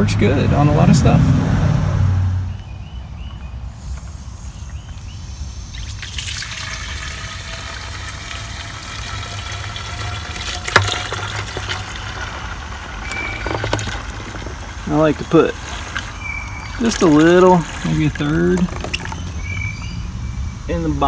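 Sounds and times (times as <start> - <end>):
hose water filling plastic jug: 5.8 - 19.4.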